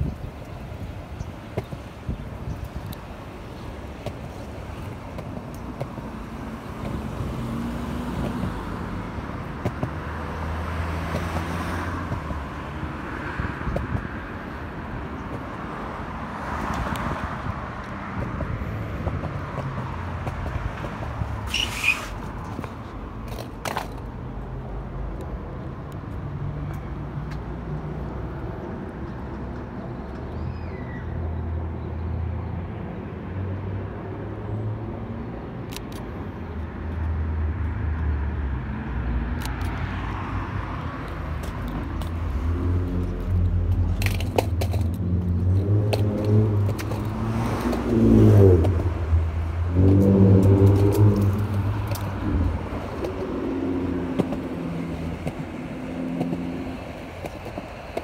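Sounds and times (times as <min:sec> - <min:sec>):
skateboard wheels rolling: 0:00.0 - 0:13.0, 0:13.6 - 0:24.4, 0:40.2 - 0:58.0
wheels clicking over cracks: 0:43.1 - 0:48.0, 0:49.9 - 0:53.4, 0:54.0 - 0:58.0.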